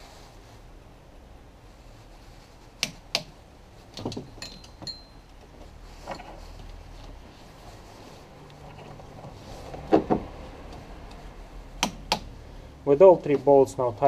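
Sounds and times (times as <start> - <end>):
metal tools clinking: 4.1 - 5.3.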